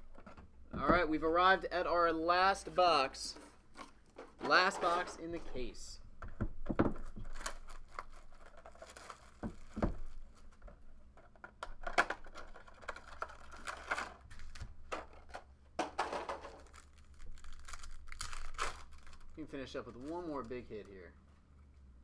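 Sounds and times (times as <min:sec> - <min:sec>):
plastic wrap crinkling and tearing: 0:07.0 - 0:10.6, 0:12.2 - 0:14.9, 0:16.4 - 0:20.9.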